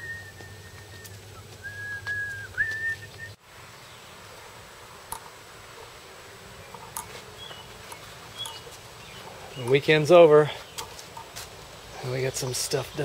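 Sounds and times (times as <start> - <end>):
person whistling: 0.0 - 3.4
faint bird chirps: 6.6 - 10.9.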